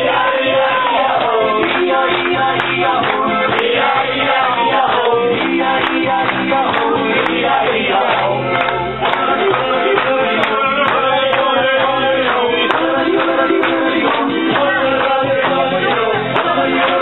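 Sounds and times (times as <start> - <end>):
audience clapping along: 0.0 - 17.0
live folk-pop band music: 0.0 - 17.0.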